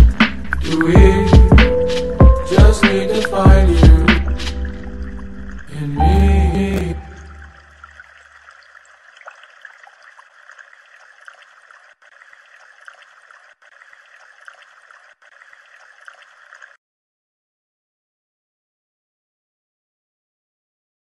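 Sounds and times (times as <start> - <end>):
music: 0.0 - 7.5.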